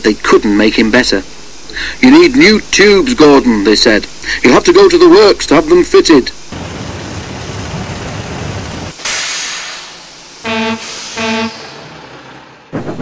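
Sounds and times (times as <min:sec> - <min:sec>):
steam hissing: 0:08.9 - 0:12.1
burst of escaping steam: 0:09.0 - 0:11.9
steam whistle toots: 0:10.4 - 0:11.8.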